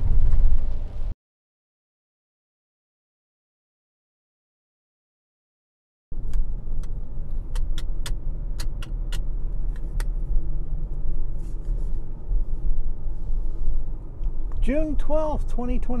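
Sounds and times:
car interior engine and road rumble: 0.0s - 1.2s, 6.1s - 16.0s
sharp irregular clicks: 6.3s - 10.2s.

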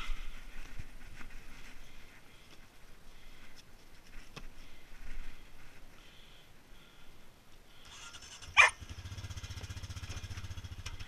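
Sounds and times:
soft rustling: 0.0s - 6.2s.

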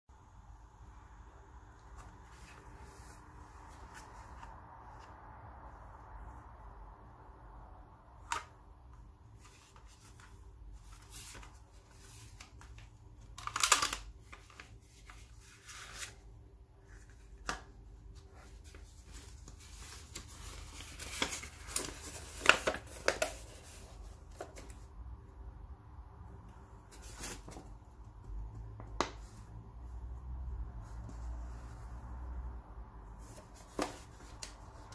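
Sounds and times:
paper leaflet rustling: 9.2s - 24.9s
plastic packaging clicks and crinkles: 12.2s - 14.8s.

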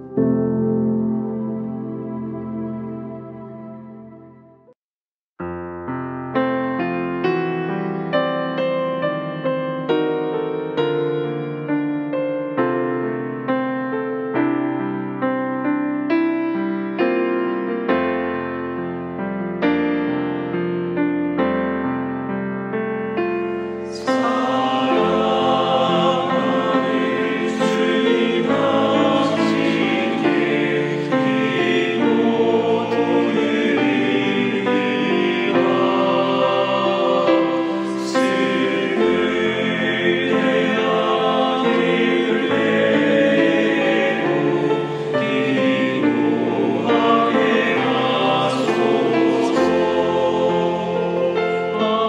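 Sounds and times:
piano: 0.0s - 4.8s, 5.4s - 52.0s
men's choir singing in harmony: 23.6s - 52.0s.

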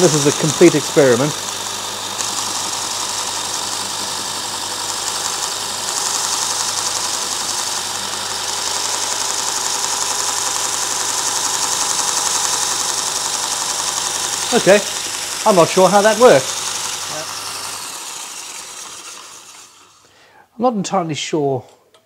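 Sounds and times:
belt sharpener motor hum: 0.0s - 20.1s
abrasive belt hissing: 13.6s - 20.1s.

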